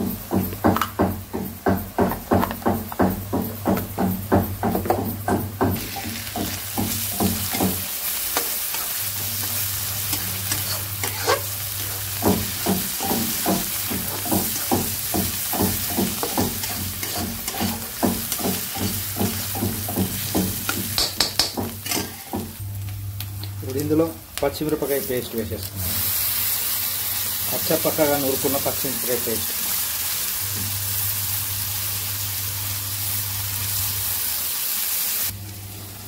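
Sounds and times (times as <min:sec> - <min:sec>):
food sizzling in hot oil: 0:00.1 - 0:36.0
spatula scraping a pan: 0:05.8 - 0:20.8, 0:21.8 - 0:22.4.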